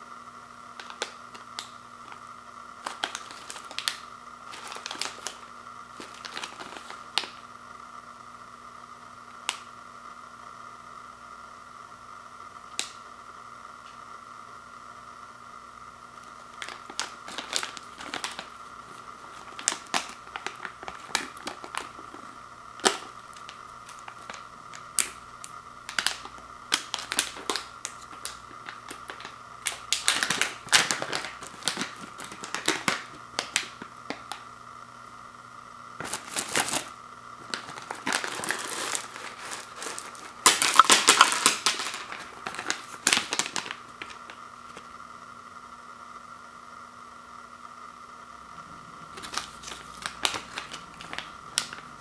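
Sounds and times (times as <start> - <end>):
plastic pouch crinkling: 2.8 - 7.4, 16.2 - 34.4, 36.0 - 44.8, 49.0 - 52.0
gum pellets rattling: 16.5 - 25.2, 25.8 - 34.3, 36.0 - 44.3, 49.1 - 51.9.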